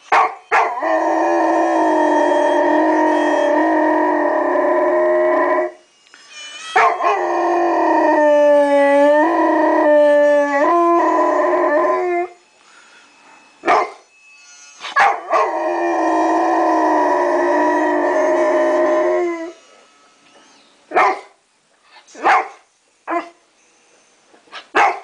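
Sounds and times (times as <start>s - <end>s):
harmonica music: 0.0s - 20.9s
dog howling: 0.6s - 5.8s, 6.8s - 12.4s, 15.0s - 19.6s.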